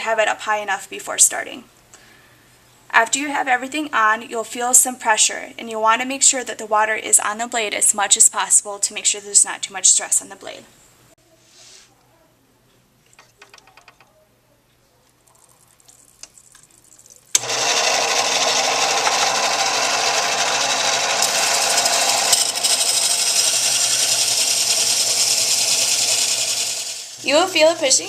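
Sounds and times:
bandsaw running: 17.3 - 27.5.

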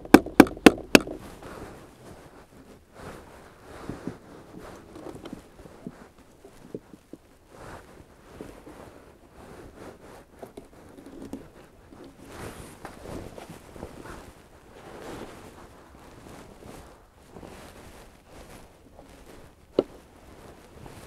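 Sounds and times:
jacket fabric rustling: 1.2 - 21.0
light taps and scrapes: 3.8 - 8.9, 9.6 - 15.5.

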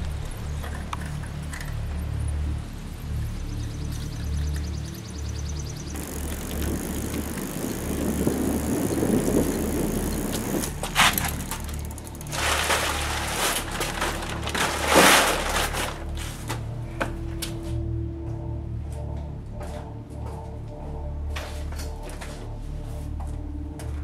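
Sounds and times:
bicycle scraping and rattling: 0.0 - 2.0, 5.8 - 16.8
bicycle rolling: 0.0 - 17.8
low droning music: 0.0 - 24.0.

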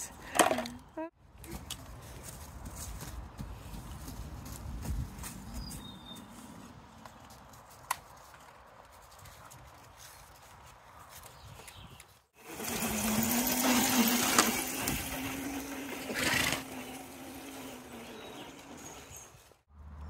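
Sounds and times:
electric motorbike motor whining: 12.4 - 19.6.

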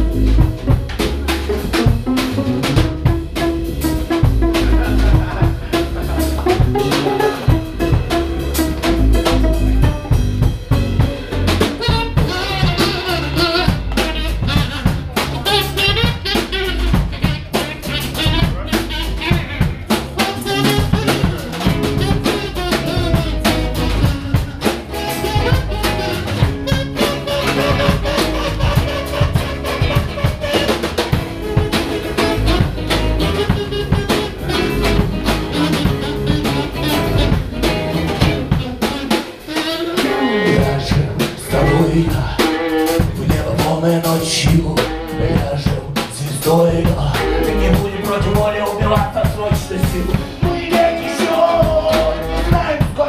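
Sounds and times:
live band playing: 0.0 - 53.0
harmonica: 11.0 - 43.1.

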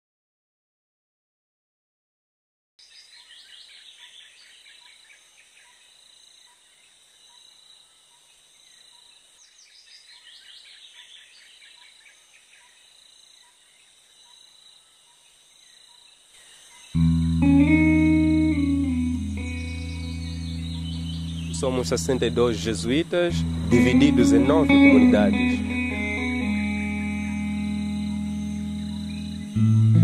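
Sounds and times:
insects trilling: 4.7 - 29.9
birds chattering: 16.4 - 29.7.

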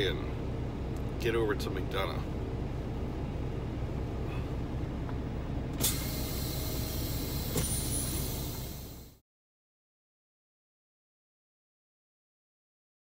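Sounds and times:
diesel engine idling: 0.0 - 9.2
air brake hiss: 5.8 - 9.2.

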